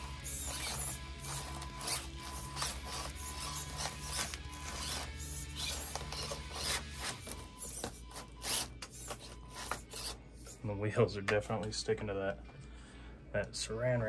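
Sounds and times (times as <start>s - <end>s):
small motor and gears whirring: 0.0s - 10.7s.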